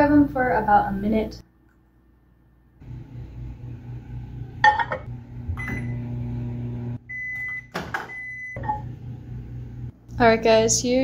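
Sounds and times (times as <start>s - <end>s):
microwave humming: 2.8s - 10.2s
high microwave beep: 5.5s - 6.4s, 7.0s - 8.9s.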